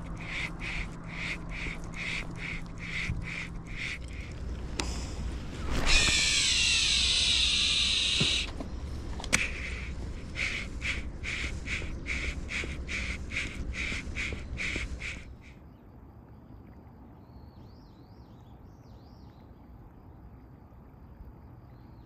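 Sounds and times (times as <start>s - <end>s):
fishing reel spool whirring: 0.0s - 14.8s
rhythmic lure retrieve: 0.0s - 15.4s.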